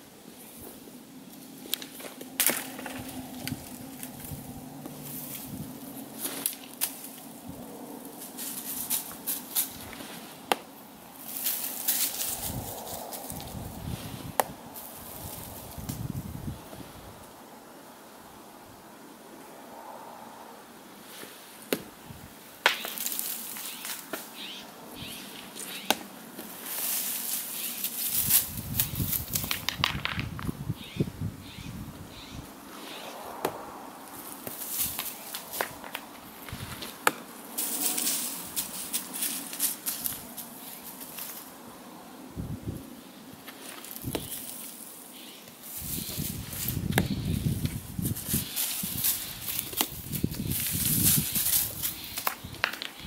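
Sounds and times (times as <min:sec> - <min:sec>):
stones clacking: 0:29.1 - 0:30.5, 0:51.9 - 0:53.0
footsteps crunching on gravel: 0:34.4 - 0:40.4.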